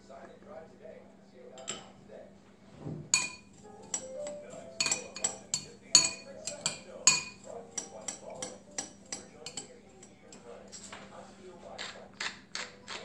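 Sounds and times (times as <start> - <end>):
spoon clinking against bowl: 1.6 - 2.0, 3.1 - 11.0
spoon stirring bread crumbs: 3.1 - 13.0.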